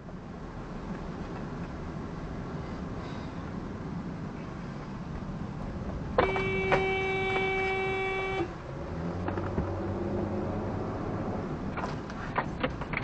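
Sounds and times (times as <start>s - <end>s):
moving car running noise: 0.0s - 13.0s
car horn blast: 6.2s - 8.6s.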